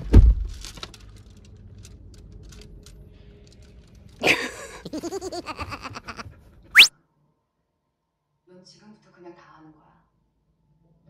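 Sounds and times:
dog whining grumble: 0:04.9 - 0:06.9.

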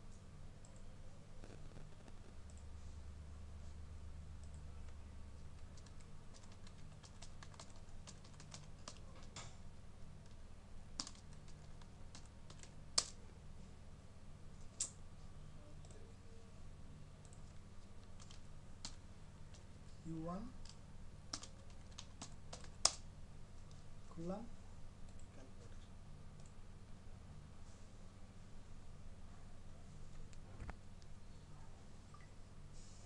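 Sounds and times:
low steady hum: 0:00.0 - 0:33.0
keyboard keystrokes: 0:05.6 - 0:09.5, 0:11.0 - 0:13.2, 0:17.2 - 0:19.6, 0:20.6 - 0:23.0.

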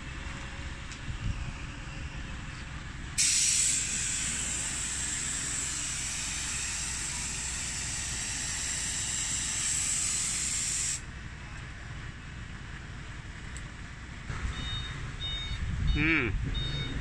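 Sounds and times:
paint spray gun air hiss: 0:03.2 - 0:11.0.

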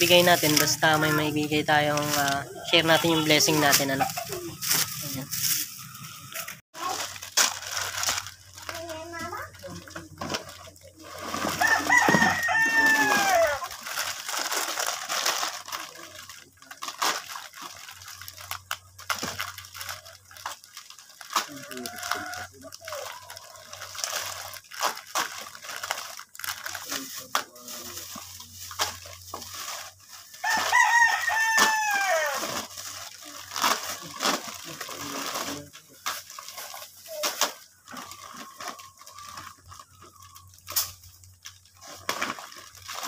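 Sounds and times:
plastic bags crinkling: 0:00.0 - 0:43.0
rooster crowing: 0:11.5 - 0:13.6, 0:30.4 - 0:32.6.

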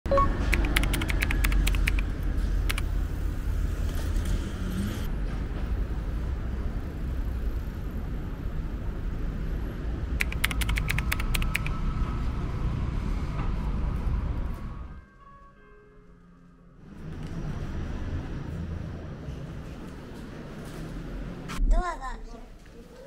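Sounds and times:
road traffic rumble: 0:00.1 - 0:15.0, 0:16.8 - 0:21.6
bursts of rapid sharp clicks: 0:00.5 - 0:02.9, 0:10.2 - 0:11.7.

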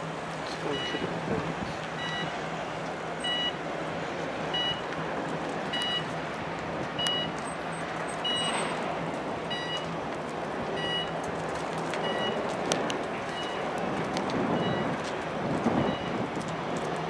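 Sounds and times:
electronic warning beeps: 0:00.6 - 0:01.2, 0:02.0 - 0:02.3, 0:03.2 - 0:03.6, 0:04.5 - 0:04.9, 0:05.7 - 0:06.1, 0:07.0 - 0:07.4, 0:08.2 - 0:08.6, 0:09.5 - 0:09.9, 0:10.8 - 0:11.2, 0:12.0 - 0:12.4, 0:13.3 - 0:13.7, 0:14.6 - 0:15.0, 0:15.8 - 0:16.2.

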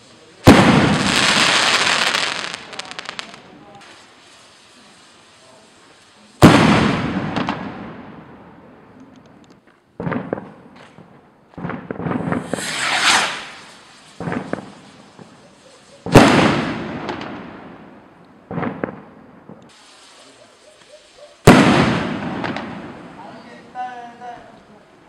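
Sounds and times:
firework rocket bangs: 0:00.0 - 0:04.1, 0:06.3 - 0:08.3, 0:10.0 - 0:20.6, 0:21.4 - 0:23.4
rising rocket hiss: 0:00.0 - 0:07.6, 0:12.1 - 0:17.9, 0:19.6 - 0:23.7.

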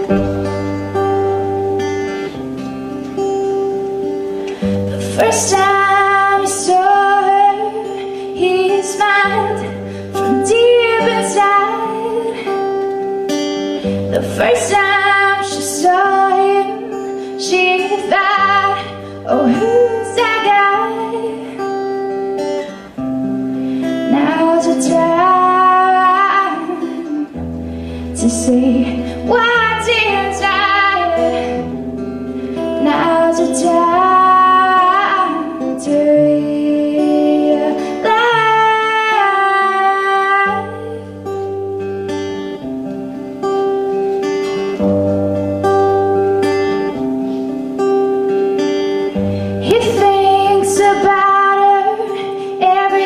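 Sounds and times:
acoustic guitar strumming: 0:00.0 - 0:53.0
woman singing: 0:04.6 - 0:22.9, 0:23.8 - 0:27.4, 0:28.0 - 0:31.8, 0:32.5 - 0:42.7, 0:47.8 - 0:53.0.

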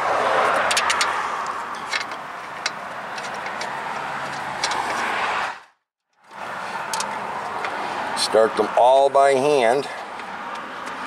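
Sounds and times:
metal bolts clicking: 0:00.6 - 0:05.1.

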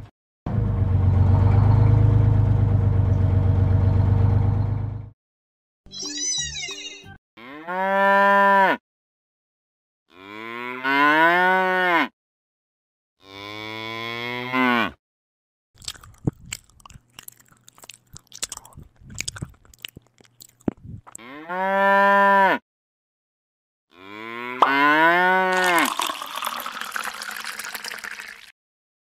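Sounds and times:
cow mooing: 0:07.4 - 0:08.8, 0:10.1 - 0:12.1, 0:13.2 - 0:15.0, 0:21.2 - 0:22.6, 0:23.9 - 0:25.8.

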